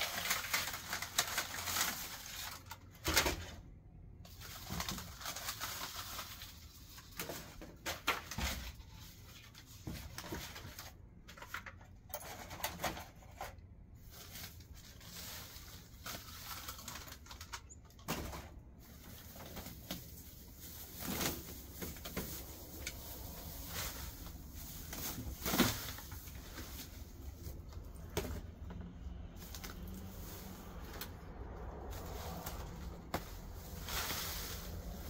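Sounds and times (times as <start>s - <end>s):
plastic bag crinkling: 0.0s - 3.2s, 4.3s - 11.3s, 14.0s - 18.1s, 18.8s - 35.0s
dry grass rustling: 18.8s - 27.8s, 29.1s - 35.0s.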